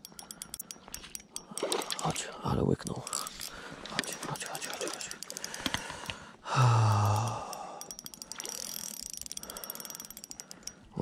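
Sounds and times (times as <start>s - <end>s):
faint rapid ticking: 0.0s - 11.0s
man sighing loudly: 6.4s - 7.8s.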